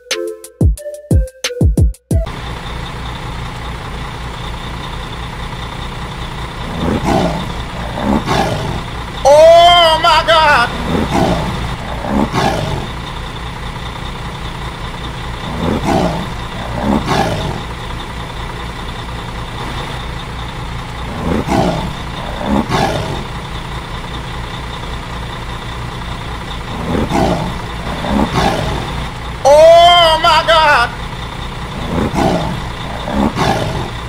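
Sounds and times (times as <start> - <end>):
truck engine rumble: 2.2 - 34.0
tiger roars: 6.6 - 13.3, 15.4 - 18.0, 21.0 - 23.6, 26.7 - 29.3, 31.7 - 34.0.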